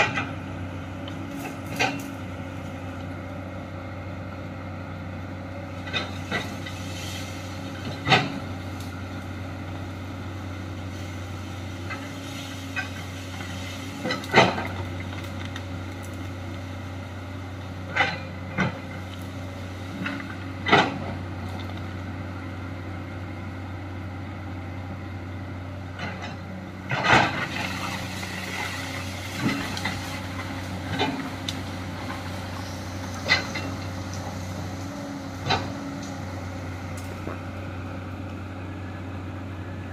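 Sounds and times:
excavator diesel engine running: 0.0 - 39.9
soil scraping rush: 5.7 - 17.0, 26.0 - 38.1.

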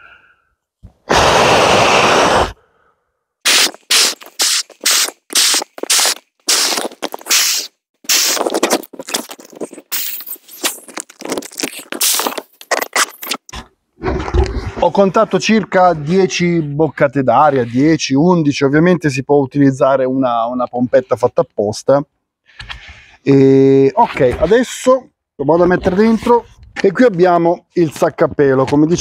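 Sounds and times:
breath blown into a valve: 1.0 - 8.4.

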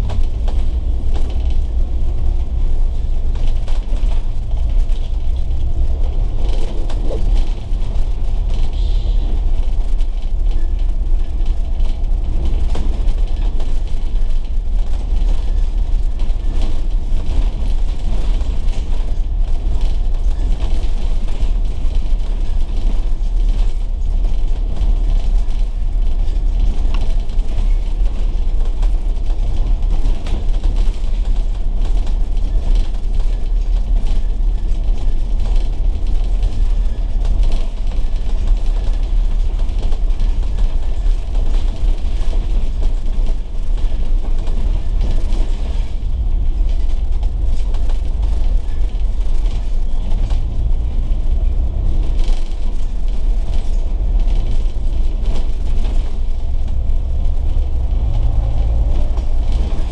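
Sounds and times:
bus diesel engine rumbling: 0.0 - 59.9.

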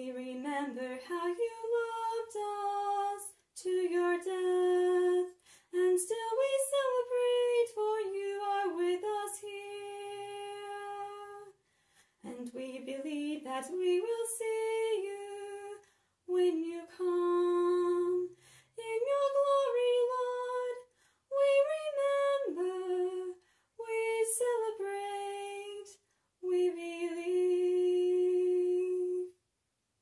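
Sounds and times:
woman singing a hymn: 0.0 - 11.6, 12.2 - 29.4.

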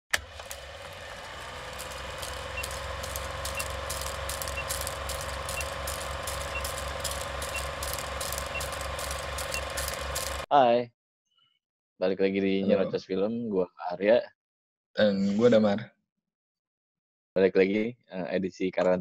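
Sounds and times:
crackling clicks: 0.1 - 10.5
machine whirring: 0.1 - 10.5
low pulsing hum: 0.4 - 10.5.

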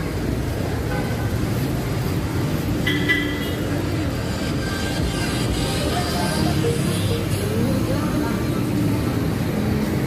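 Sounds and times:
street traffic rumble: 0.0 - 10.0
music playing: 4.9 - 9.0.

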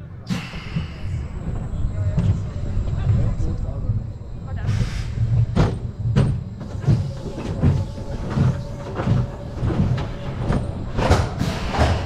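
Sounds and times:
roller coaster train rolling: 0.0 - 12.0
low clunks and knocks: 5.3 - 12.0.

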